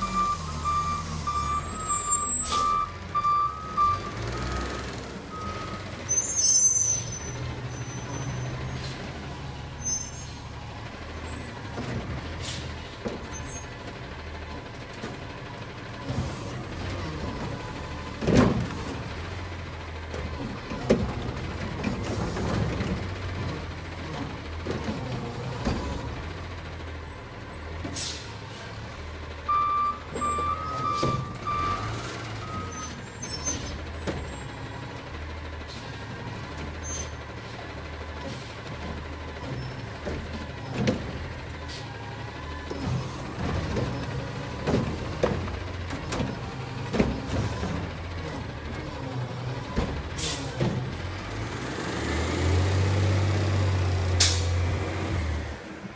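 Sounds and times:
truck warning beeper: 0:00.0 - 0:08.5, 0:29.5 - 0:33.8
garbage truck diesel engine: 0:00.0 - 0:55.9.

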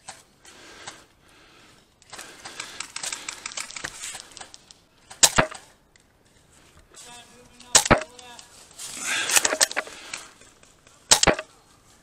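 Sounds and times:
loud sharp crack: 0:05.1 - 0:05.7, 0:07.6 - 0:08.2, 0:11.1 - 0:11.5
airsoft guns firing in bursts: 0:07.7 - 0:08.2, 0:11.1 - 0:11.5.

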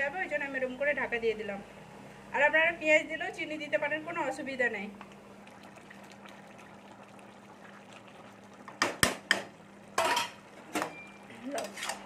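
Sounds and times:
metal spatula scraping pot: 0:11.5 - 0:12.0.

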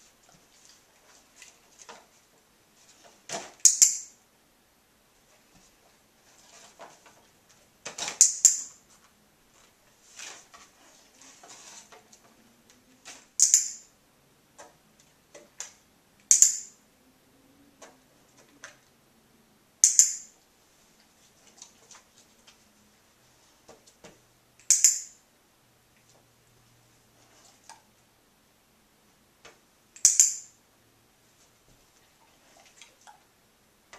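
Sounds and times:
faint rustles and ticks: 0:00.0 - 0:03.3, 0:20.4 - 0:24.3
clicker double clicks: 0:13.4 - 0:13.8, 0:16.3 - 0:16.7, 0:19.8 - 0:20.2, 0:24.6 - 0:25.1, 0:30.0 - 0:30.4.

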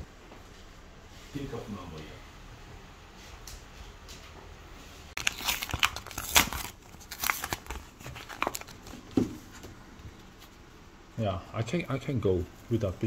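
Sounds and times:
packaging crinkling: 0:05.2 - 0:09.1.

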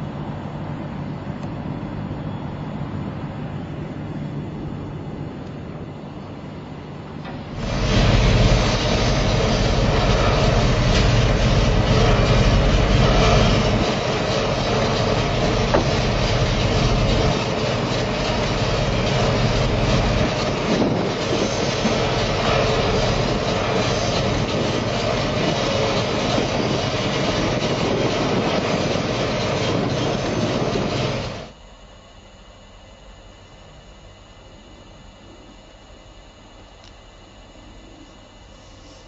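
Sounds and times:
gas compressor rumbling: 0:04.8 - 0:31.6.

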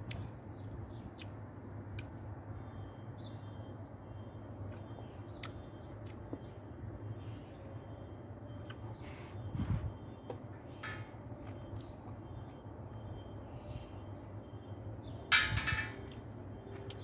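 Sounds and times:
low background hum: 0:00.0 - 0:17.0.

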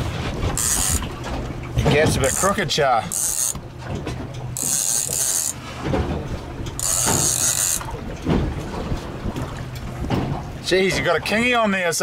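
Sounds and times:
fishing reel whirring: 0:00.6 - 0:01.1, 0:02.3 - 0:03.6, 0:04.6 - 0:05.6, 0:06.8 - 0:07.9.

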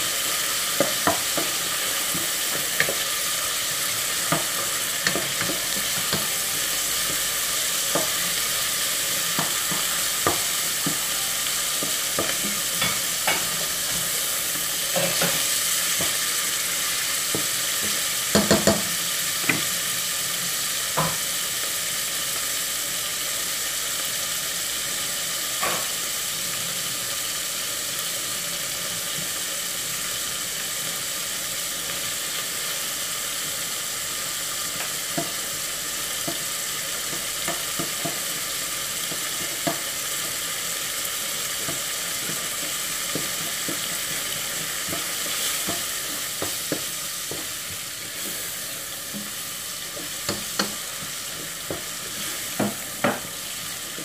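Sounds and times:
chicken and onion sizzling: 0:00.0 - 0:54.0
spatula knocking against pot: 0:17.4 - 0:18.9.

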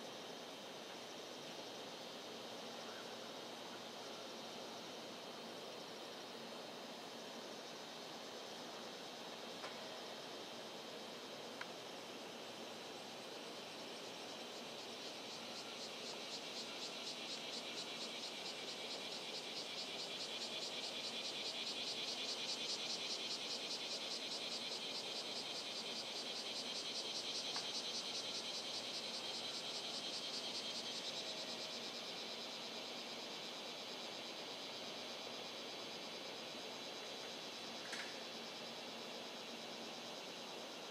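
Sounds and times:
insect's high-pitched pulsing song: 0:12.2 - 0:40.9.

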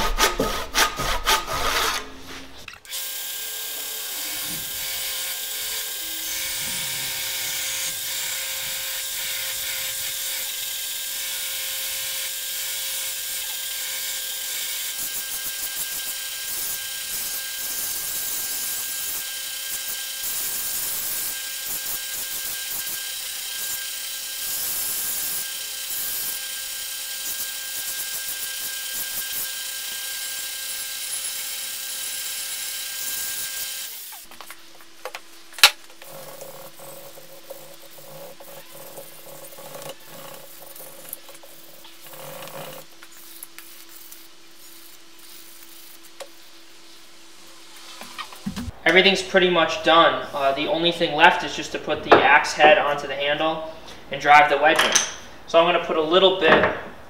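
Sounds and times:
belt grinder sanding wood: 0:00.0 - 0:34.3, 0:35.9 - 0:46.5.

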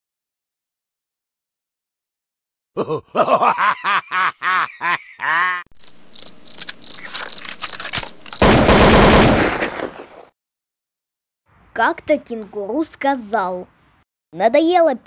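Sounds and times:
cricket chirps: 0:05.8 - 0:09.0.

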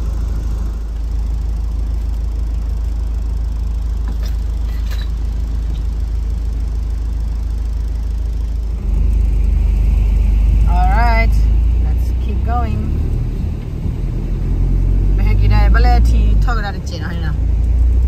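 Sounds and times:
road noise: 0:00.0 - 0:18.0
vehicle engine rumble: 0:00.0 - 0:18.0.

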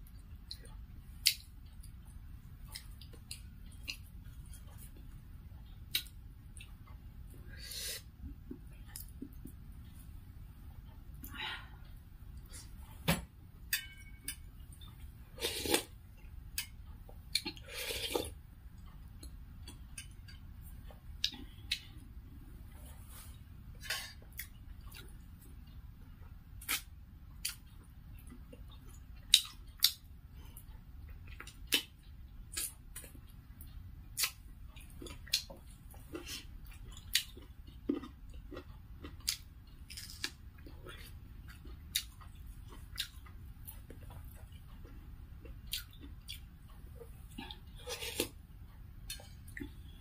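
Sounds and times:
slurping: 0:15.4 - 0:15.9, 0:17.4 - 0:18.4, 0:47.4 - 0:48.4
wet chewing and lip smacks: 0:26.6 - 0:48.4.

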